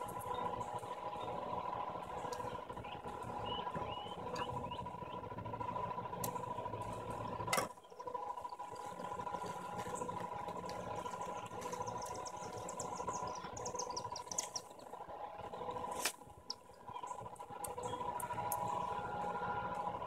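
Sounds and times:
dry nest crackling: 8.2 - 19.9.

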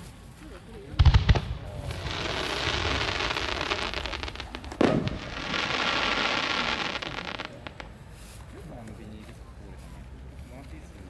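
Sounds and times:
fireworks crackling hiss: 0.0 - 8.6
firework bang: 1.0 - 7.8.

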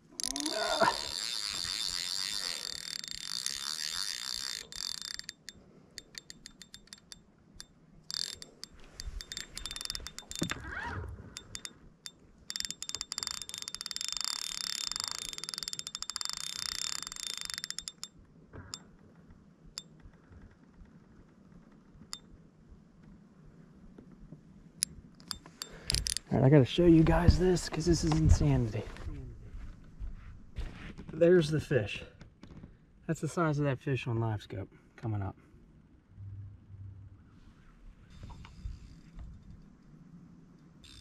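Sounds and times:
fishing reel clicking rapidly: 0.2 - 10.7, 11.4 - 18.1, 25.2 - 26.3.

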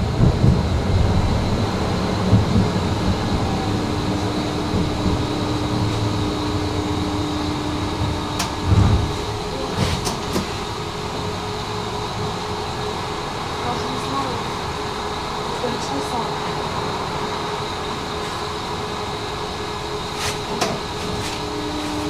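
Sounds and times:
electric whine: 0.0 - 22.0
tram wheels rumbling on rail: 0.0 - 22.0.

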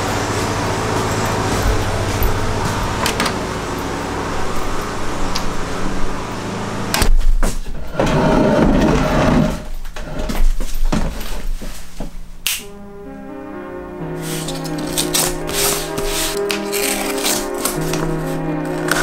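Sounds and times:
wooden chair scraping and creaking: 7.3 - 12.2, 14.2 - 19.0.

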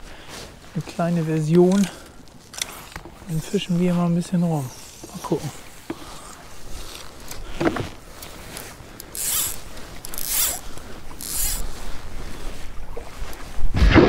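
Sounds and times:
fly line rasping through guides: 1.4 - 7.4, 8.2 - 12.6.

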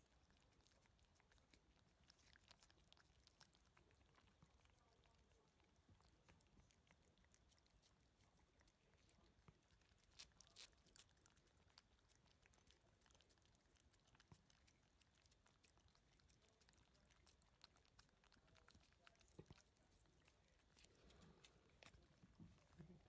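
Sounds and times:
cats licking and chewing: 0.0 - 23.0.

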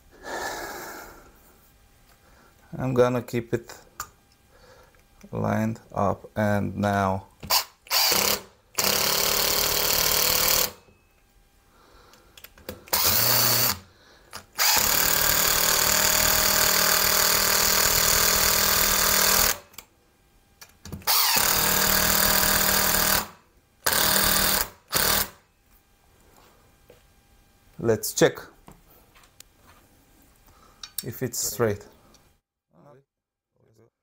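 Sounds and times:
power drill driving screws: 7.4 - 10.8, 12.9 - 13.8, 14.4 - 19.8, 21.0 - 25.4.

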